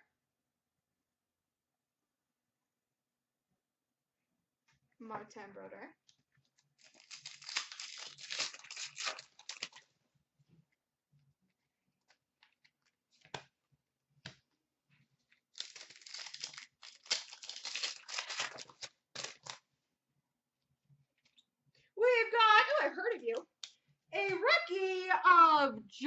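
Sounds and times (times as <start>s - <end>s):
wrappers tearing and crinkling: 6.8s - 9.8s, 15.5s - 19.6s.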